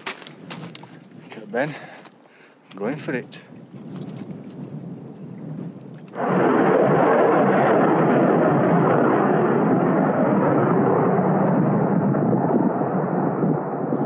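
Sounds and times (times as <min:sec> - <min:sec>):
wind blowing on microphone: 0:00.0 - 0:14.0.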